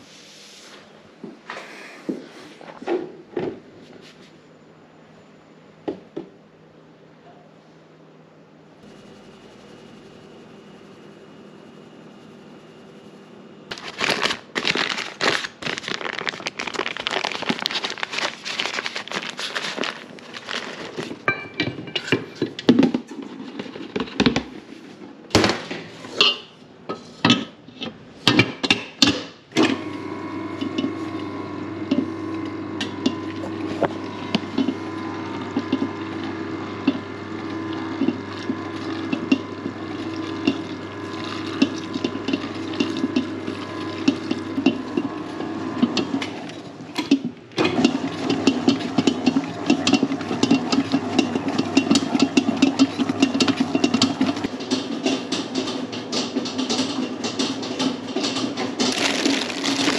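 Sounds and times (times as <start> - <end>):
mixer humming: 8.8 - 22.6, 29.6 - 59.9.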